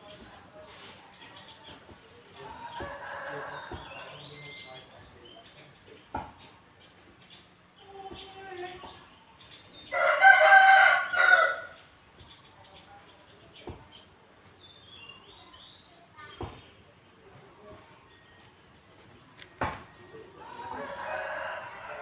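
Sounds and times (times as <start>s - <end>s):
rooster crowing: 9.9s - 11.8s, 20.4s - 22.0s.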